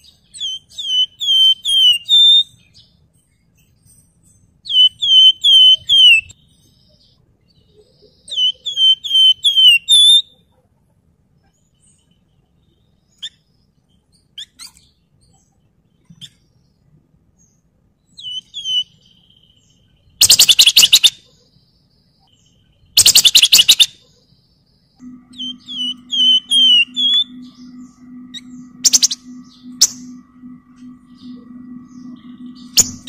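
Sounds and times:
bird whistles: 0.4 - 2.5, 4.7 - 6.3, 8.3 - 10.3, 18.2 - 19.0, 20.2 - 21.2, 23.0 - 23.9, 25.3 - 33.0.

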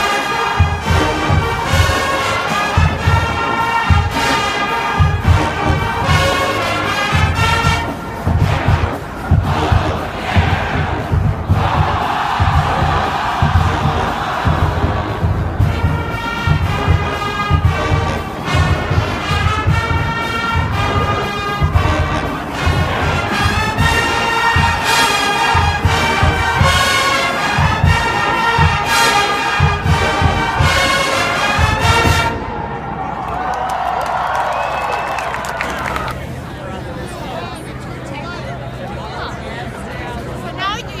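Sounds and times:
marching band playing brass: 0.0 - 36.5
bass drum beat: 5.0 - 32.5.

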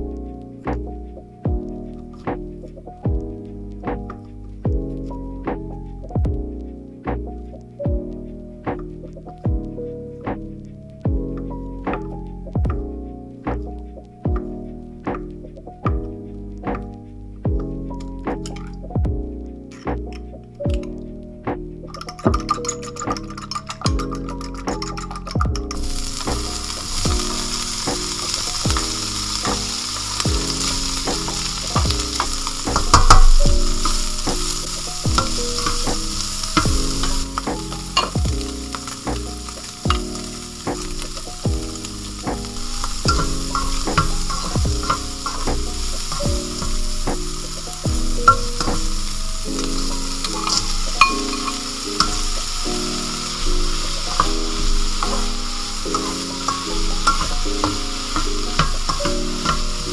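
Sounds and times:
food sizzling in a wok: 21.9 - 59.9
spatula scraping and knocking pan: 21.9 - 59.9.

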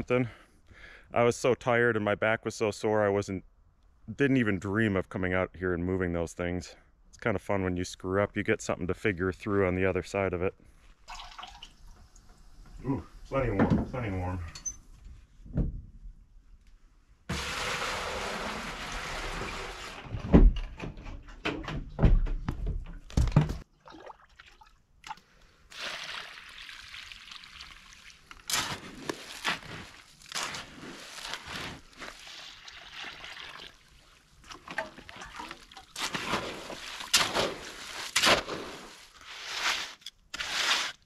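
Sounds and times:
water pouring: 11.0 - 12.6, 17.3 - 20.2, 23.7 - 40.7
wet concrete sloshing: 23.6 - 41.0.

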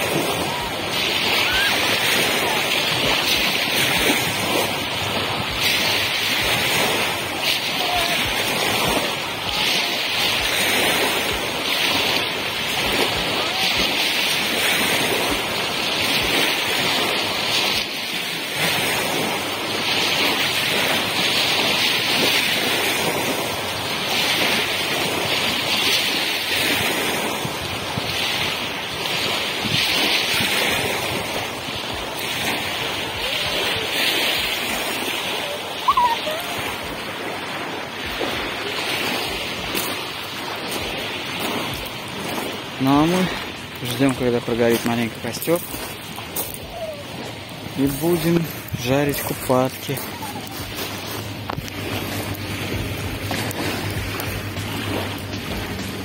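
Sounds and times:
waves lapping on pebble shore: 0.0 - 56.0
wind rumbling on microphone: 0.0 - 56.0.

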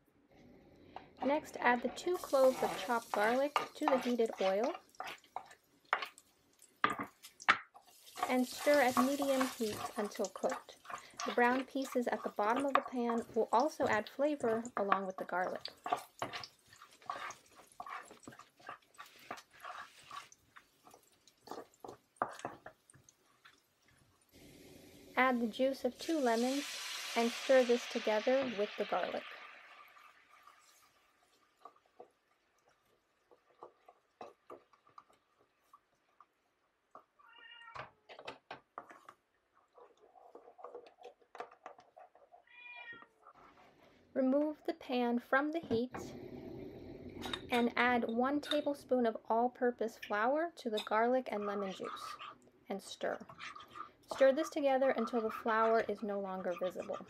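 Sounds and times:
spoon scraping a pan: 1.0 - 23.6, 38.8 - 43.7, 49.9 - 57.0
high-pitched cry: 37.2 - 37.8.

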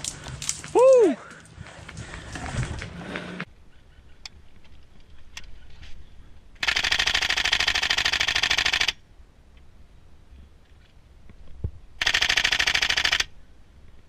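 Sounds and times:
airsoft rifle full-auto burst: 6.6 - 9.0, 12.0 - 13.3.

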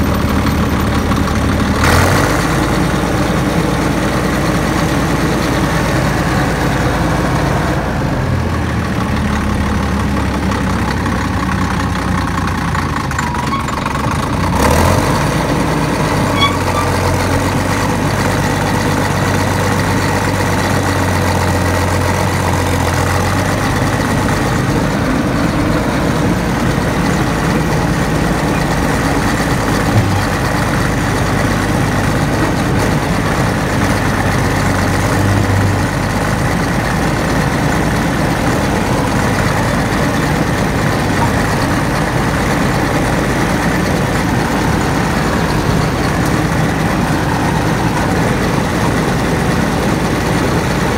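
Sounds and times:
bulldozer diesel engine running: 0.0 - 50.9.

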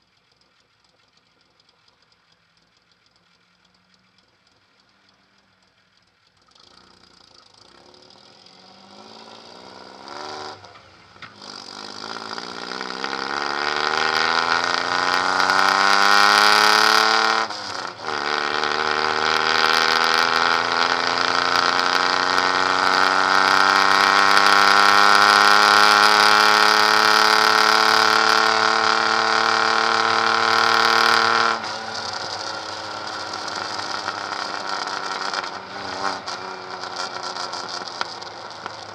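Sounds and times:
car engine accelerating: 0.0 - 38.9.

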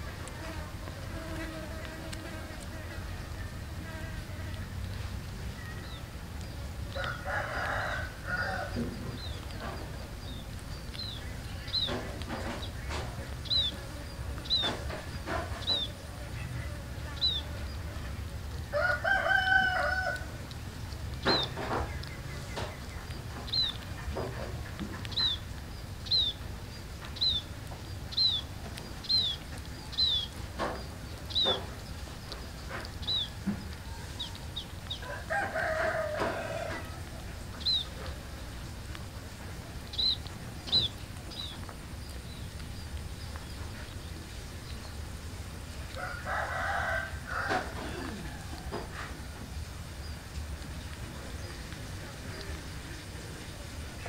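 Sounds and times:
rooster crowing: 7.0 - 8.9, 18.7 - 20.3, 35.0 - 37.2, 45.9 - 49.4
small bird chirping: 8.7 - 17.9, 20.8 - 24.1, 25.0 - 35.1, 37.4 - 38.8, 39.8 - 45.2.

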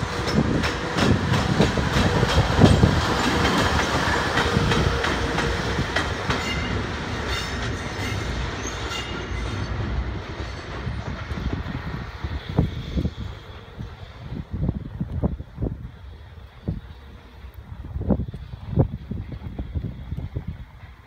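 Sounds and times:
wheels clacking over rail joints: 0.0 - 14.0
locomotive rumble: 0.0 - 21.0.

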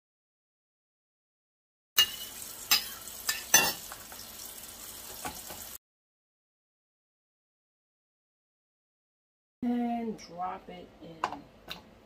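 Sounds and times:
knife and tub knocking on countertop: 5.1 - 5.7.

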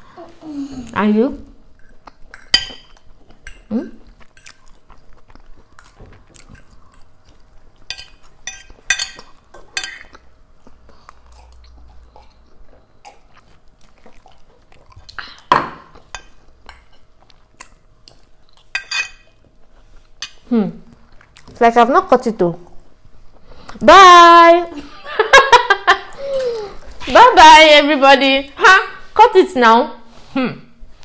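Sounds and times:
chewing and eating: 1.7 - 21.6
forks scraping on plates: 18.7 - 19.4.

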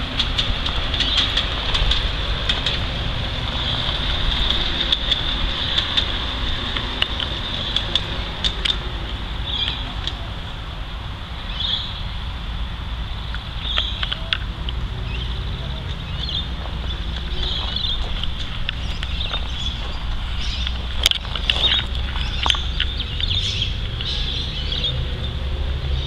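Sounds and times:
electric locomotive whine: 0.0 - 26.0
low rumble: 0.0 - 26.0
wheels clicking over rail joints: 0.0 - 26.0.

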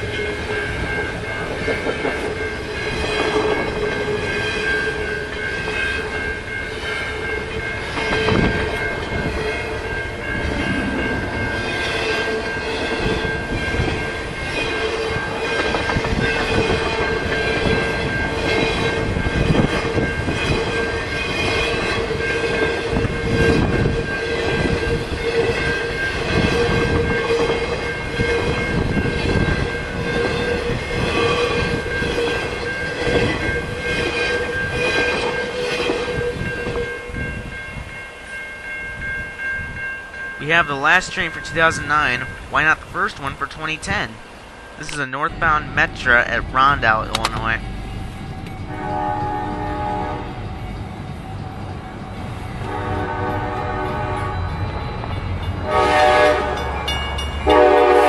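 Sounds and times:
freight train wheels clattering: 0.0 - 37.9
crossing bell ringing tones: 0.0 - 58.0.

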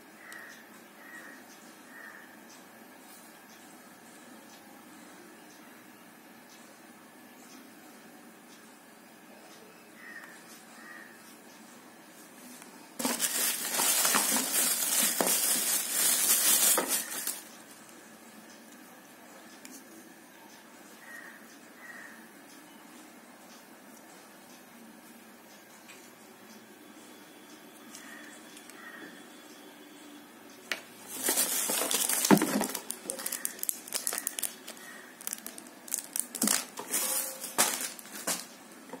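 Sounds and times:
plastic wrapping crinkling: 13.0 - 17.5, 31.0 - 38.6.

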